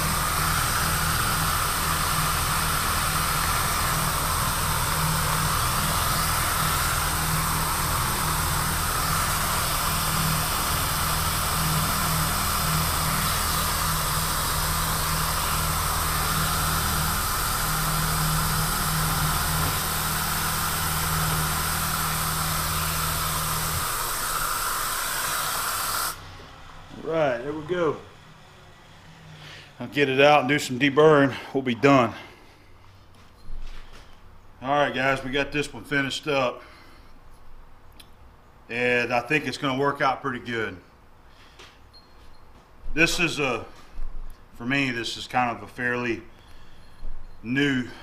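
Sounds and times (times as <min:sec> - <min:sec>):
coolant sprayer hiss: 0:00.0 - 0:28.2, 0:43.0 - 0:43.7
milling machine cutting steel: 0:00.0 - 0:29.3.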